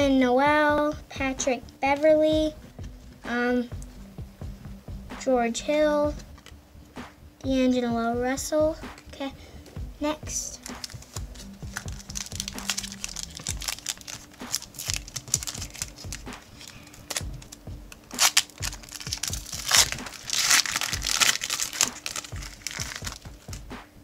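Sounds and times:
wrapper crinkling and tearing: 0:10.6 - 0:23.7.

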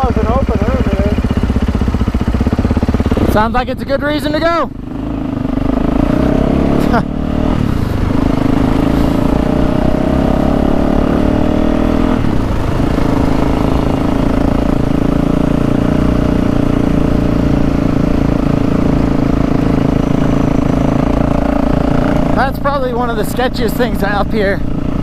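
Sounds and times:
dirt bike engine running: 0:00.0 - 0:25.0
wind rumbling on microphone: 0:07.4 - 0:22.4.

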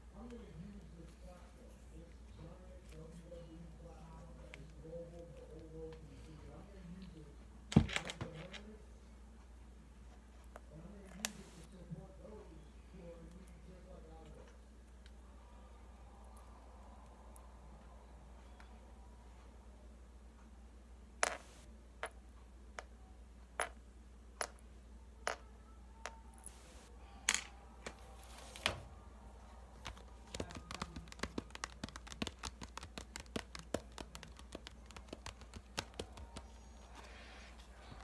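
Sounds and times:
hands handling clicking objects: 0:29.8 - 0:37.1.

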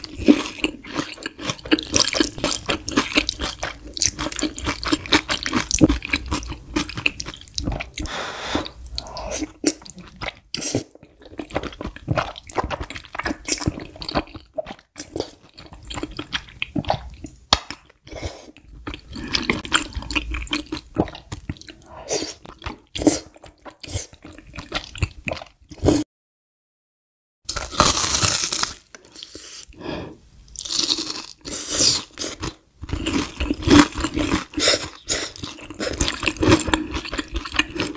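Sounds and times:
person slurping and chewing noodles: 0:00.0 - 0:17.3, 0:18.0 - 0:26.0, 0:30.6 - 0:37.9.

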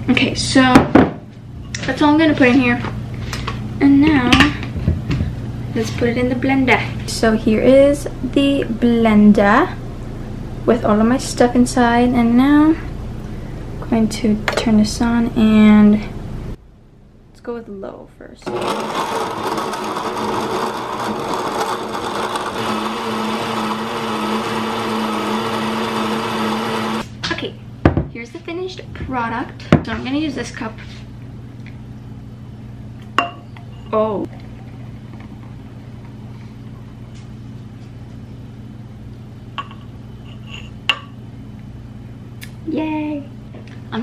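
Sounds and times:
steady low hum: 0:00.0 - 0:44.0
frozen fruit grinding: 0:18.4 - 0:27.0
blender motor running: 0:18.4 - 0:27.1
smoothie pouring into glass: 0:18.5 - 0:27.0.

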